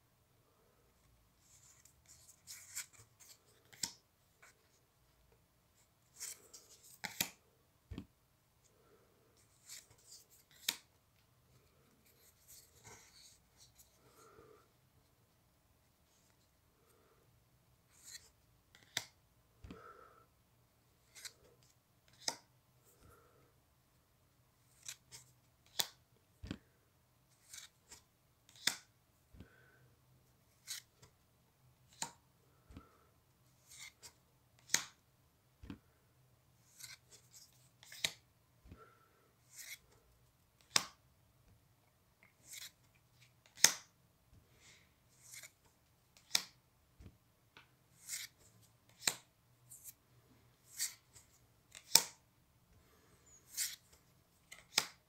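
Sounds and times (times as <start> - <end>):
paper cards swishing and snapping: 1.5 - 4.6, 6.1 - 8.1, 9.4 - 10.9, 21.0 - 21.4, 22.1 - 22.5, 24.7 - 26.6, 27.4 - 28.9, 30.5 - 31.1, 31.9 - 32.2, 33.6 - 35.0, 36.6 - 38.2, 39.5 - 40.0, 40.6 - 41.0, 42.4 - 43.9, 45.2 - 46.6, 48.0 - 50.0, 50.6 - 52.2, 53.5 - 55.0.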